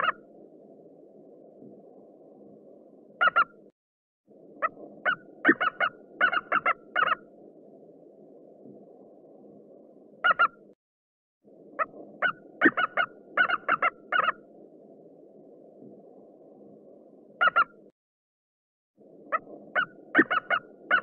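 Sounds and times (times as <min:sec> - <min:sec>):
eagle calling: 0:04.6 - 0:07.2, 0:11.8 - 0:14.4, 0:19.3 - 0:21.0.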